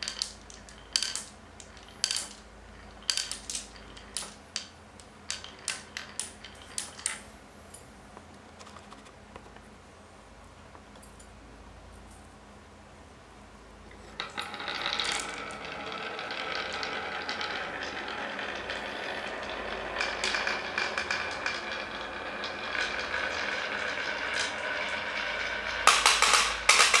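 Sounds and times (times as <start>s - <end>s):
balls rattling down wooden marble run: 0.0s - 7.2s, 14.0s - 27.0s.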